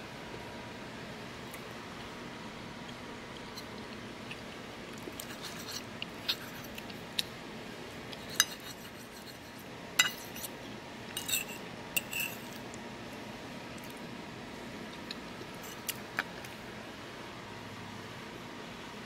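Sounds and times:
fork clinking on a china plate: 8.2 - 9.4, 10.0 - 10.5, 11.2 - 12.6.

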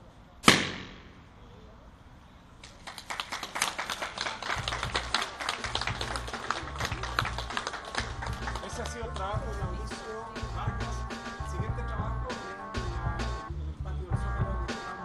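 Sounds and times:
audience applause: 2.6 - 9.3.

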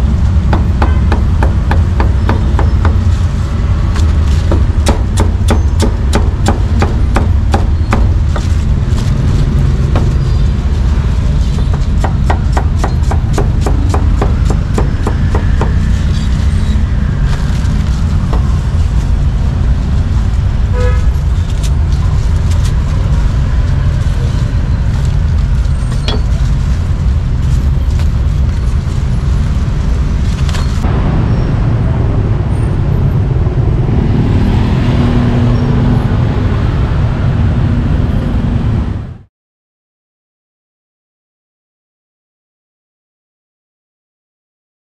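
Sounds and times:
street traffic rumble: 0.0 - 39.3
vehicle horn toot: 0.9 - 1.1, 20.7 - 21.1
cleaver chopping meat: 11.8 - 15.8.

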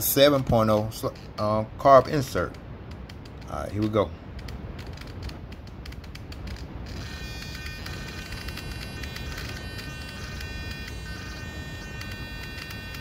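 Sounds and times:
servo buzzing: 6.4 - 13.0
faint high whine: 6.5 - 13.0.

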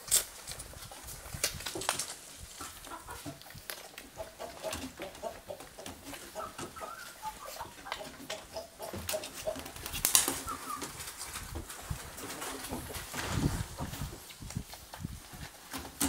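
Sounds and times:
low clucking calls: 2.6 - 11.2.

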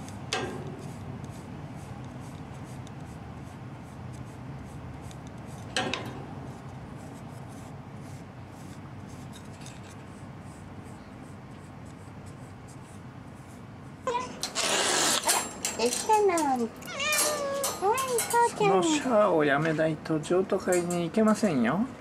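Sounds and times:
stick rubbing over fur: 0.0 - 5.7, 6.4 - 15.4.

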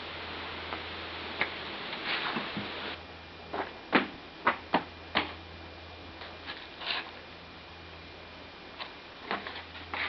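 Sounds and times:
rustle: 0.0 - 4.1, 6.1 - 7.4, 8.7 - 10.0
low steady hum: 0.0 - 10.0.

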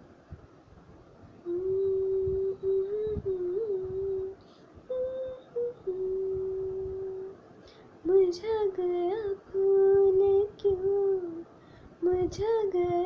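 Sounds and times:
woman humming: 1.4 - 7.4
woman singing: 1.5 - 7.4, 8.0 - 13.0.

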